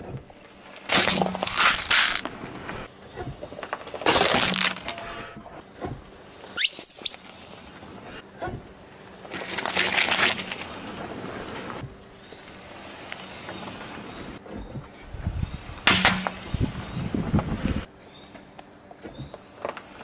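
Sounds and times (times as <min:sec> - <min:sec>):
rubber ducks squeaking: 0:06.6 - 0:07.3
car tyre rolling on asphalt: 0:08.8 - 0:14.4.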